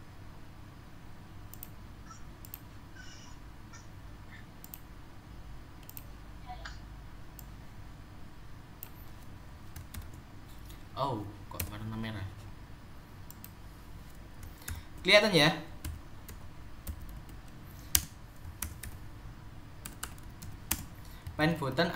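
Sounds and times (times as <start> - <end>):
low steady hum: 0.0 - 21.9
computer mouse clicks: 1.5 - 1.8, 2.4 - 2.7, 4.6 - 4.9, 5.8 - 6.1, 13.3 - 14.8.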